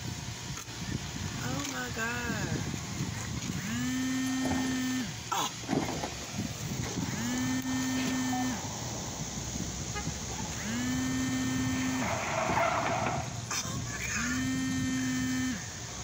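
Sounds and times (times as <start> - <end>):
harsh rough noise: 2.4 - 15.8
car engine revving: 2.8 - 16.0.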